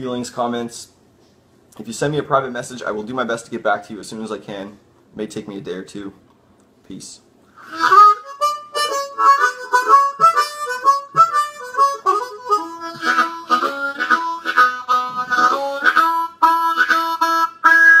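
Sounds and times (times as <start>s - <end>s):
harmonica blues riff: 7.6s - 18.0s.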